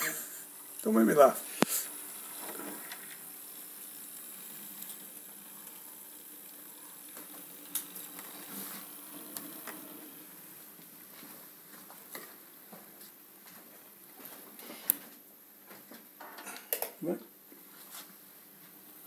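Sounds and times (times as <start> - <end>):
model train motor whirring: 1.6 - 10.4.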